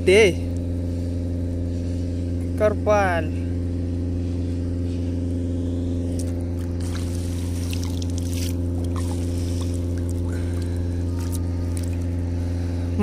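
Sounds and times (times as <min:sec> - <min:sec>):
small boat engine running: 0:00.0 - 0:13.0
water splashes and drips: 0:06.2 - 0:12.2.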